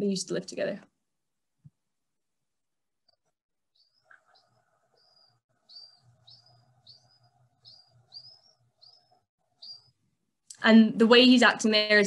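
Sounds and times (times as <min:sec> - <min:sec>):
young pigeon squeaking: 0:03.8 - 0:10.0.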